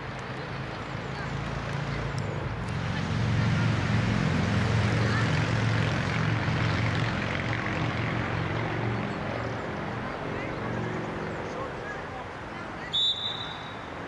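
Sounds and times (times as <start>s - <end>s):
low engine drone: 1.9s - 11.6s.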